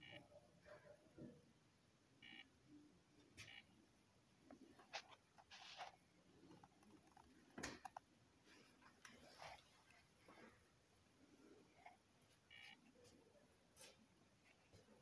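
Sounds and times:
faint clicks and knocks: 4.4 - 10.5.

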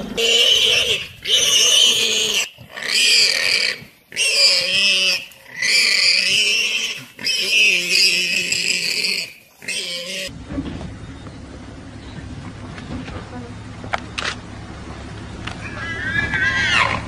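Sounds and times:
warthog squealing: 0.0 - 10.3, 15.6 - 17.0.

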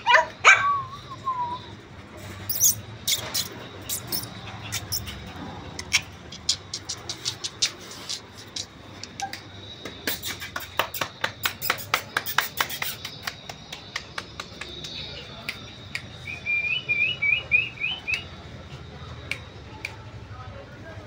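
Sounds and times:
puppy claws clicking on tiles: 2.5 - 16.1.

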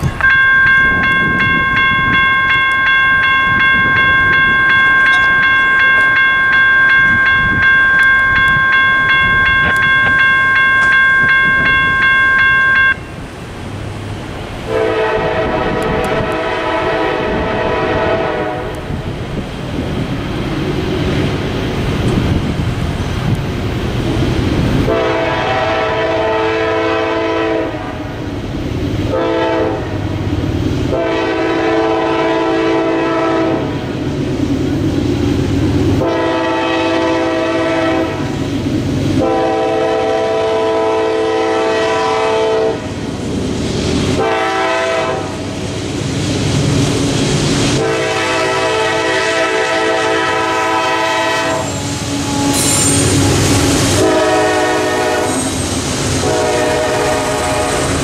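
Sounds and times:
diesel locomotive rumble: 0.0 - 58.0
locomotive air horn blasts: 14.7 - 18.9, 24.8 - 28.1, 29.1 - 30.0, 30.9 - 33.8, 36.0 - 38.4, 39.2 - 43.0, 44.1 - 45.5, 47.7 - 55.6, 56.2 - 58.0.

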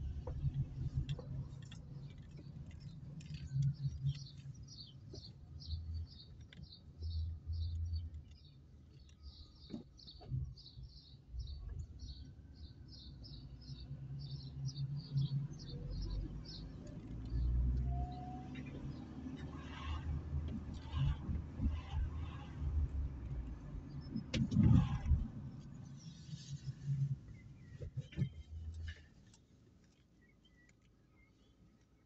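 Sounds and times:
engine and tyre rumble: 0.0 - 32.0.

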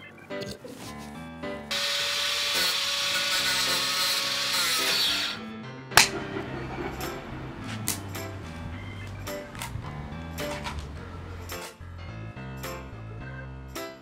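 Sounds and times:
background music: 0.0 - 14.0
angle grinder cutting: 1.7 - 5.4.

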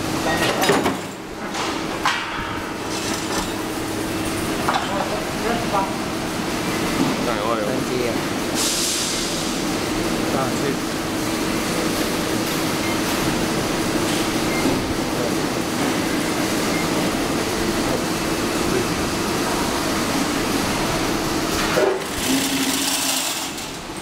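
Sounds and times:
weaving machine running: 16.1 - 24.0.

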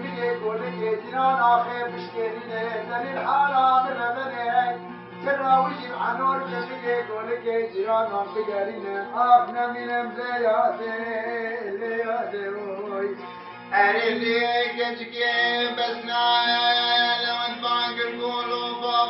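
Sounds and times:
long-necked lute playing: 0.0 - 19.0
man singing: 0.0 - 19.0.

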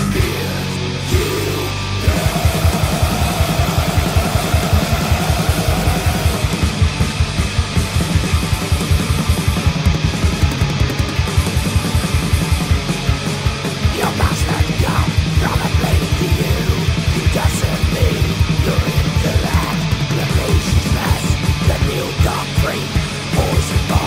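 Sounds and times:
distorted electric guitars: 0.0 - 24.0
fast drumming with kick drum: 2.1 - 24.0.

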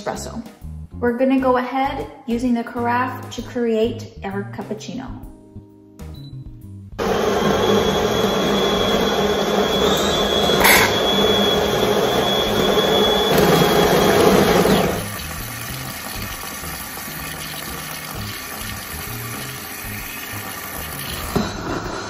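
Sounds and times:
espresso machine steam hiss: 7.0 - 15.0
thin high whistle: 7.4 - 15.0.

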